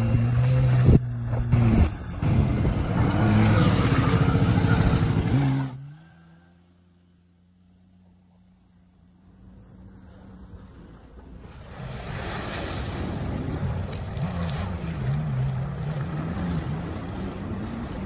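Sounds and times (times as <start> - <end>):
churned water hissing: 0.0 - 5.8
jet ski engine running: 0.0 - 5.8, 6.4 - 18.0.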